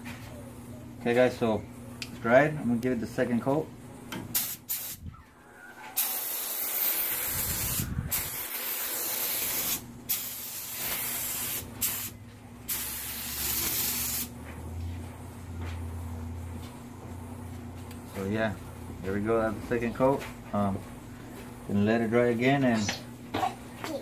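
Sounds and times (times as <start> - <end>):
spray gun hissing: 4.3 - 5.0, 6.0 - 14.3.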